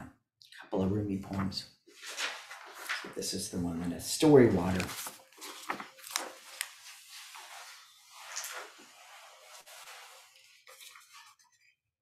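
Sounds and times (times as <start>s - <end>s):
book pages flicking and rustling: 1.9s - 3.2s, 4.5s - 11.6s.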